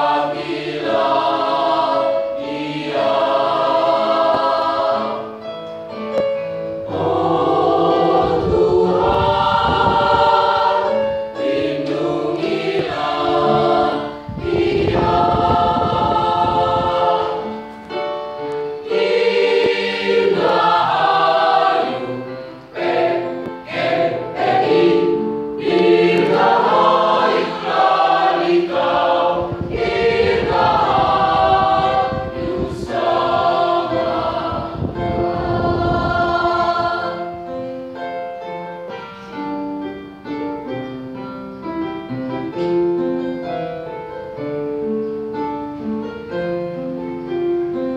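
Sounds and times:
mixed choir singing: 0.0 - 5.5, 6.8 - 18.0, 18.6 - 38.0.

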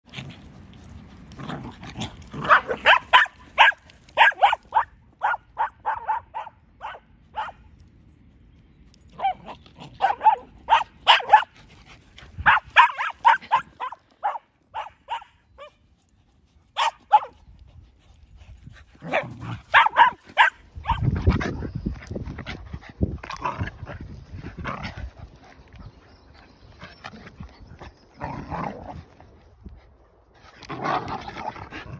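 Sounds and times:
dogs barking: 2.4 - 7.6, 9.2 - 11.6, 12.4 - 15.8, 16.8 - 17.4, 19.0 - 21.1.

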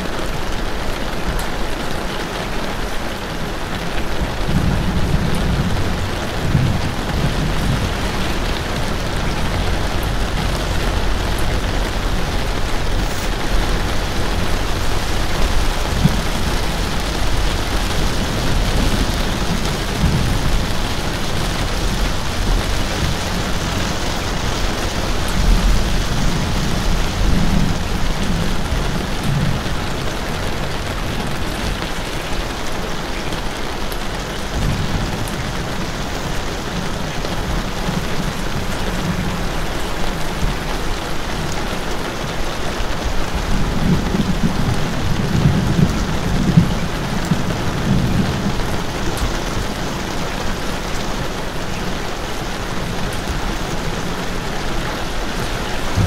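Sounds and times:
steady rain falling: 0.0 - 56.0
low rumbles: 3.9 - 33.5.

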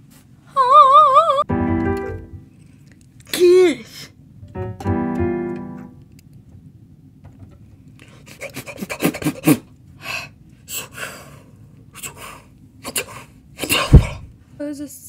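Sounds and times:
piano keyboard chord: 1.5 - 2.5, 4.4 - 6.1.

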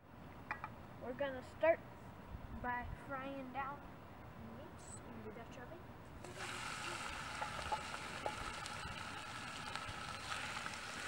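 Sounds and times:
meat sizzling in a pot: 6.2 - 11.0.

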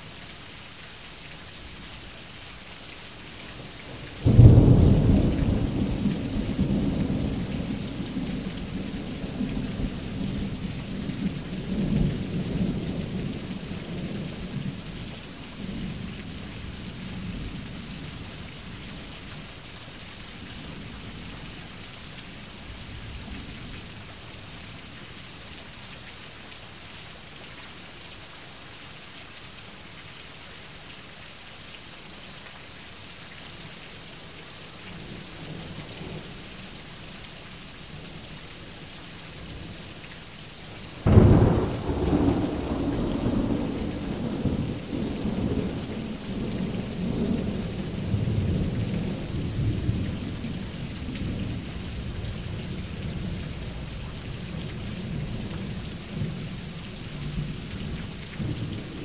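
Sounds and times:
heavy rain falling: 0.0 - 59.0
thunder rumbling: 41.0 - 45.9.

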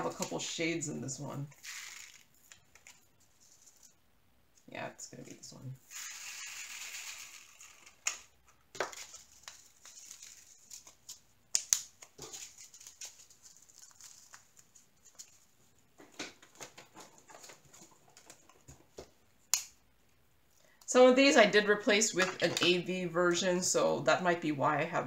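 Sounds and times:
plastic zip bags crinkling: 1.5 - 3.9, 5.9 - 15.5.

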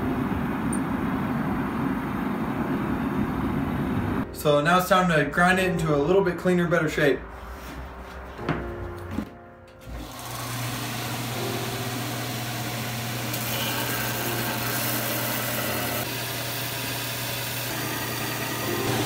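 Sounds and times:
belt sander motor: 9.9 - 19.0
steel blade grinding on belt: 13.3 - 16.1.

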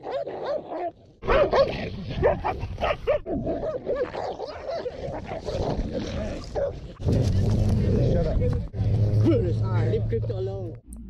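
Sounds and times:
dogs barking and yelping: 0.0 - 5.8, 6.4 - 7.4.

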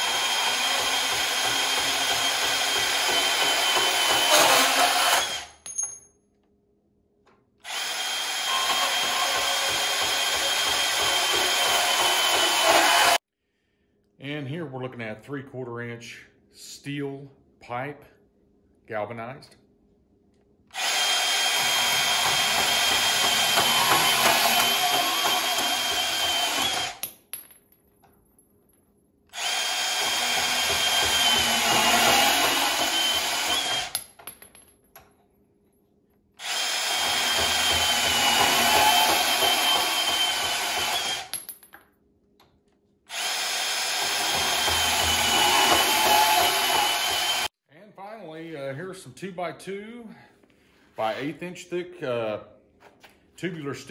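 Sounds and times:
bandsaw cutting steel pipe: 0.0 - 5.5, 7.7 - 13.2, 20.9 - 27.0, 29.4 - 33.9, 36.4 - 41.3, 43.2 - 47.5.

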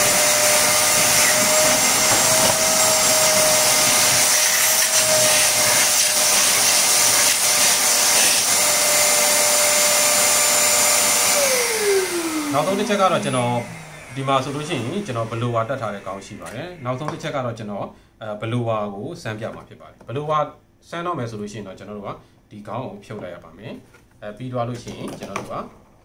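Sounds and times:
hose sucking water: 0.0 - 8.8
wet dry vacuum whining: 0.0 - 17.6.

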